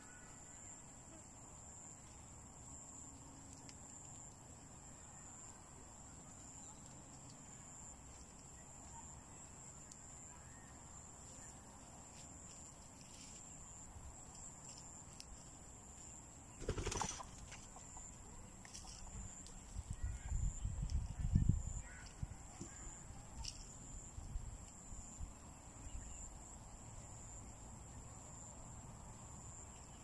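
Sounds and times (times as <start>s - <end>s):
high insect trill: 0.0s - 30.0s
chicken wings flapping: 16.6s - 17.8s.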